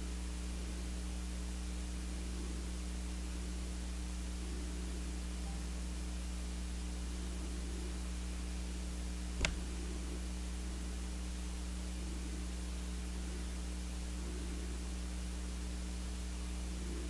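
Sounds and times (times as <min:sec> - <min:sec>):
electrical hum with hiss: 0:00.0 - 0:17.0
sharp click: 0:09.4 - 0:09.6.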